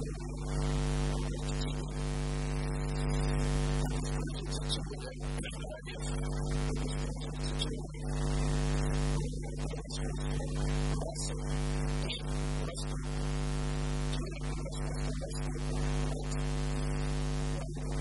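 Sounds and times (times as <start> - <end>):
man talking: 0.0 - 2.0, 3.8 - 13.1, 14.1 - 16.5, 17.3 - 18.0
electrical mains hum: 0.0 - 18.0.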